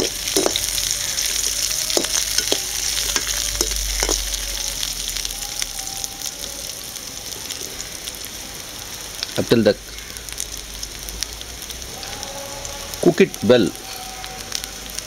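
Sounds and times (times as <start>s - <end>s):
metal spatula scraping a pan: 0.0s - 4.5s
vegetables sizzling in hot oil: 0.0s - 15.0s.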